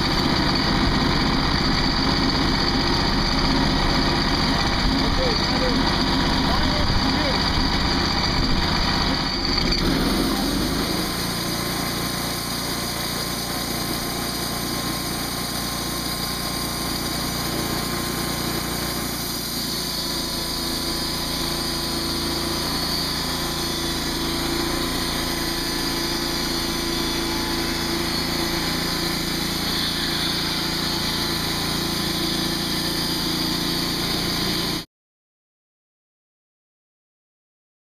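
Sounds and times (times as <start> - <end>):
sawmill engine running: 0.0 - 34.9
band blade cutting wood: 7.5 - 34.8.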